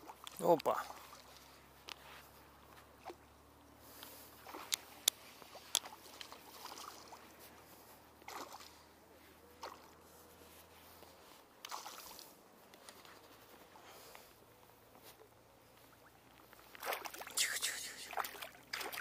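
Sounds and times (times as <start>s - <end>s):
fish splashing in water: 5.5s - 7.4s, 8.2s - 8.9s, 9.6s - 9.9s, 11.7s - 12.4s, 16.0s - 19.0s.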